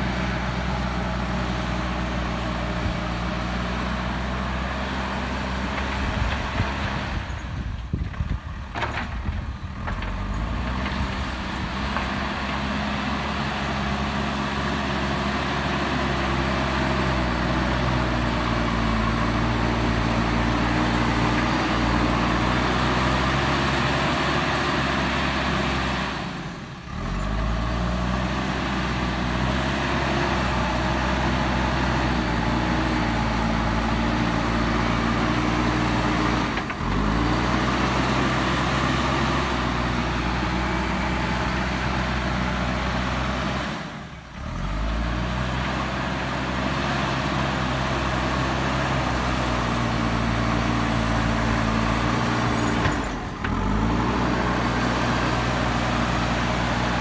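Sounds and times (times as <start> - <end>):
diesel engine running: 0.0 - 57.0
loader bucket pushing soil: 0.0 - 57.0.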